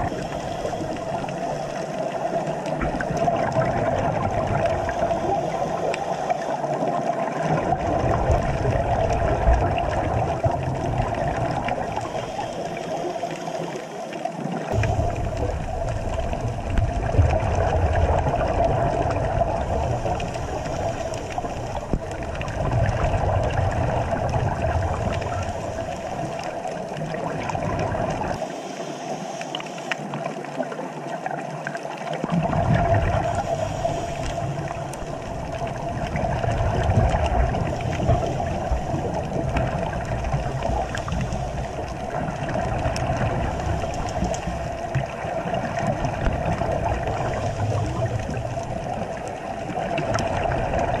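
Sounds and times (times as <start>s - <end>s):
muffled underwater rushing: 0.0s - 51.0s.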